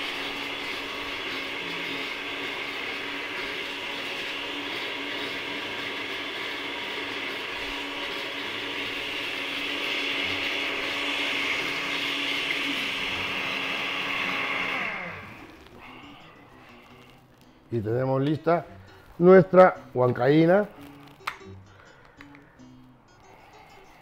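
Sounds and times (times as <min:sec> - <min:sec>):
blender motor winding down: 0:00.0 - 0:17.1
blender running: 0:00.0 - 0:17.1.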